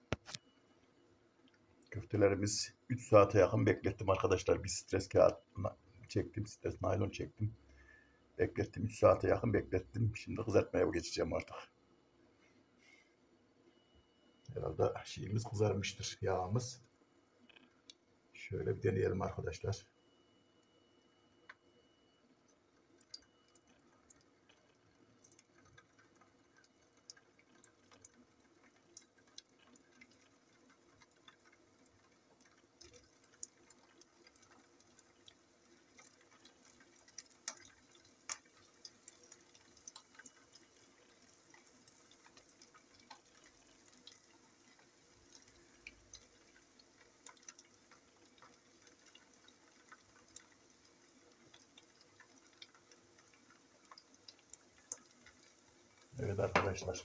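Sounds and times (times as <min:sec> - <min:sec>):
patties sizzling in oil: 0:18.9 - 0:57.0
oil popping and crackling: 0:22.4 - 0:57.0.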